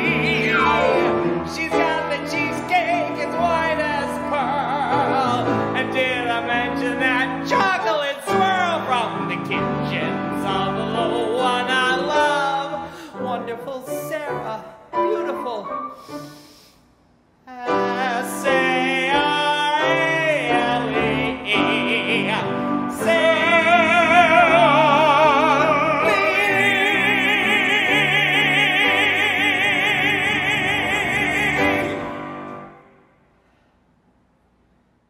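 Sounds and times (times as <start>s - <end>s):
man singing operatically: 0.0s - 15.8s, 17.5s - 32.4s
piano accompaniment: 0.0s - 16.5s, 17.5s - 33.0s.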